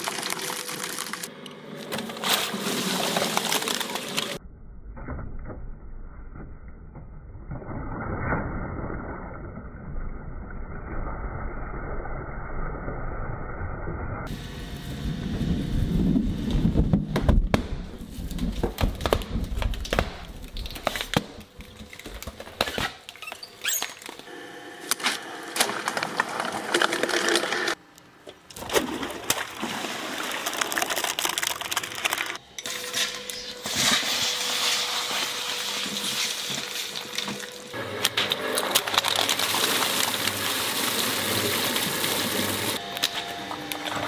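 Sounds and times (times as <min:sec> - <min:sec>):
shredding machine running: 0:00.0 - 0:04.4, 0:24.3 - 0:27.8, 0:30.8 - 0:44.0
low motor rumble: 0:14.2 - 0:18.0
dense crackle of clicks: 0:30.6 - 0:32.4.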